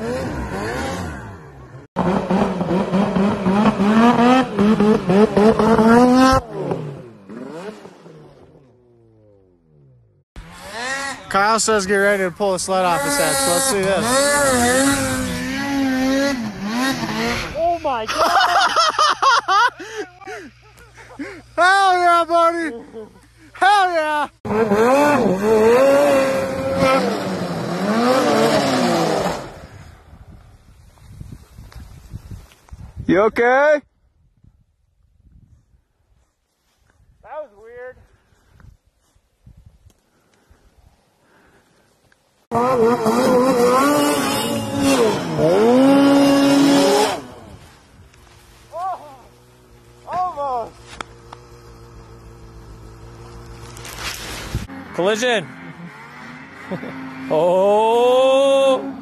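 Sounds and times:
snowmobile engine revving: 0.0s - 30.0s, 42.5s - 59.0s
quieter engine tone: 42.5s - 59.0s.

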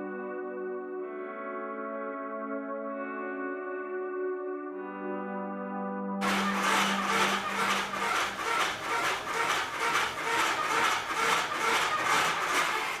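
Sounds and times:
tool scraping spinning wood: 6.2s - 13.0s.

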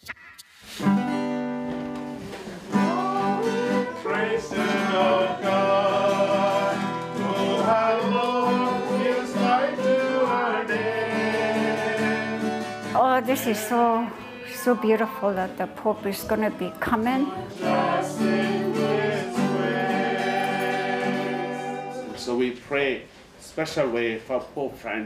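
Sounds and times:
acoustic guitar strumming: 0.0s - 22.3s
person singing country song: 2.2s - 22.2s.

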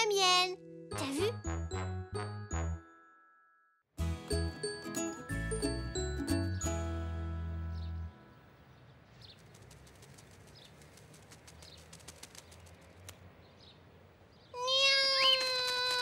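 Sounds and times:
light ticks and twitters: 9.3s - 13.2s
cartoon bird calls: 14.6s - 16.0s.

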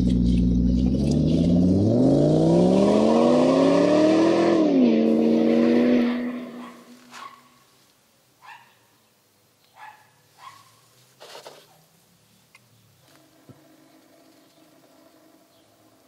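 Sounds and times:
car engine revving: 0.0s - 7.1s.

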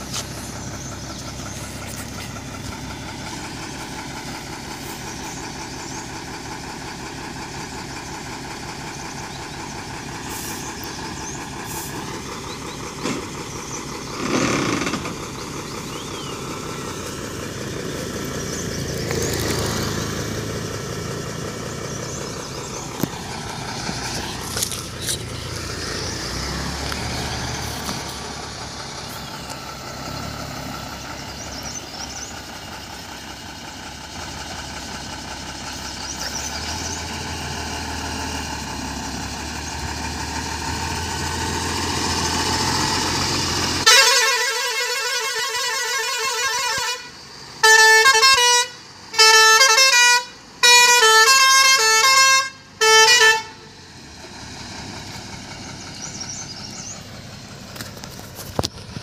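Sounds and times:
truck diesel engine running: 0.0s - 59.0s
truck horn musical tune: 43.7s - 53.8s.

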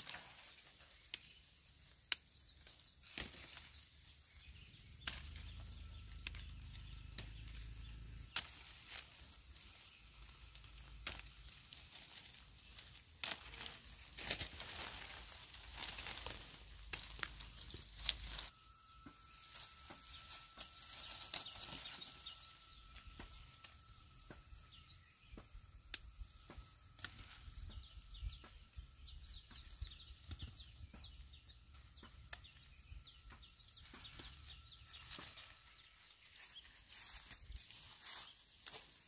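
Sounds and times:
small birds chirping: 0.0s - 39.0s
thin whistle-like tone: 17.4s - 25.2s.

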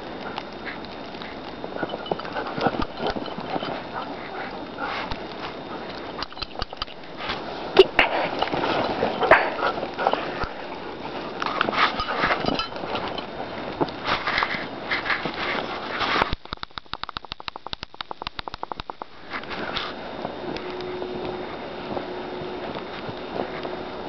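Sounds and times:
dog sniffing and breathing: 0.1s - 7.4s, 8.0s - 12.5s.

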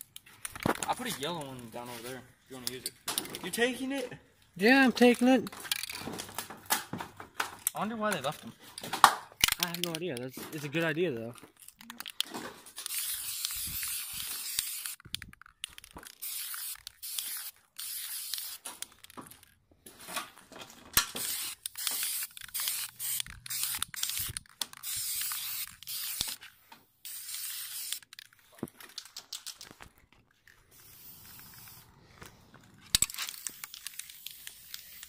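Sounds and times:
spray paint can hissing: 12.8s - 15.1s, 16.0s - 18.7s, 21.1s - 26.4s, 27.0s - 28.2s, 30.7s - 32.0s, 32.9s - 35.0s.

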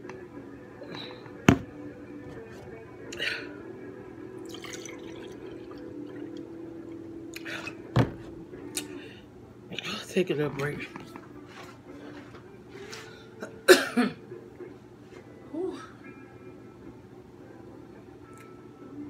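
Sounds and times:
juice pouring into a glass: 4.4s - 7.1s.

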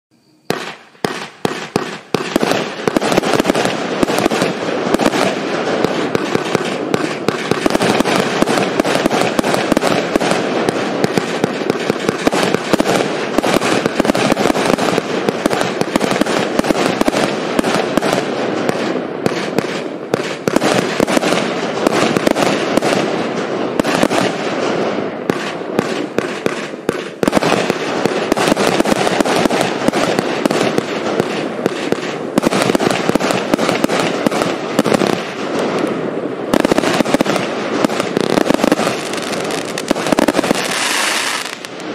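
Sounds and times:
fireworks launching and bursting: 0.4s - 41.9s.

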